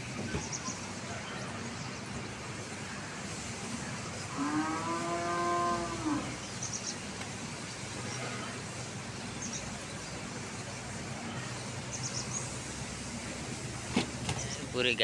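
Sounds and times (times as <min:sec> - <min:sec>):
cow mooing: 0:04.3 - 0:06.4.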